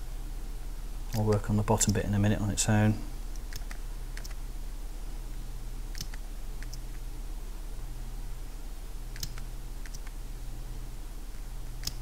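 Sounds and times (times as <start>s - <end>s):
steady low hum: 0.0s - 12.0s
computer mouse clicks: 3.3s - 4.4s, 5.9s - 6.9s, 9.1s - 10.2s, 11.8s - 12.0s.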